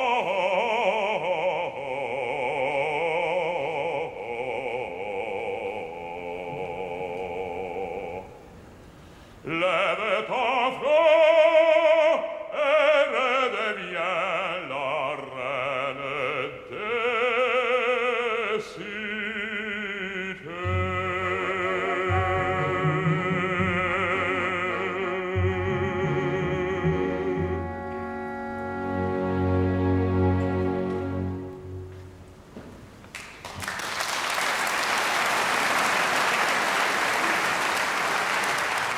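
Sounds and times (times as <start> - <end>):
operatic bass voice singing: 9.5 - 27.8
orchestra playing: 20.6 - 32.4.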